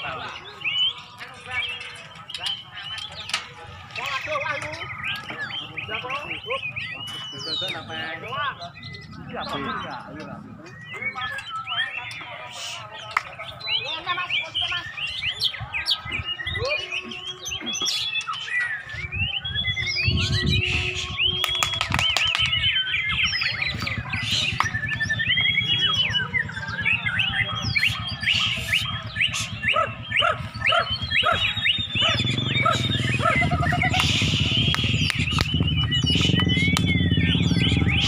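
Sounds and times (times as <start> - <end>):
songbirds whistling and trilling: 0.0 - 38.0
low rumble: 23.0 - 38.0.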